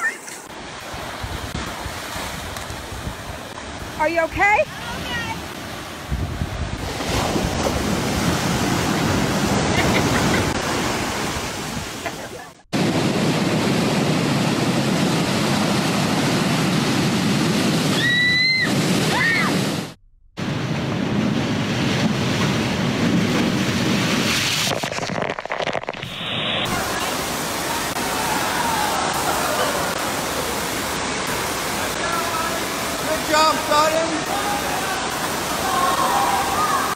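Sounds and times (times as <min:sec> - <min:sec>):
ocean waves breaking: 0:00.0 - 0:36.9
rush of pumped water: 0:00.0 - 0:36.9
wind on microphone: 0:00.8 - 0:04.0, 0:04.8 - 0:12.1.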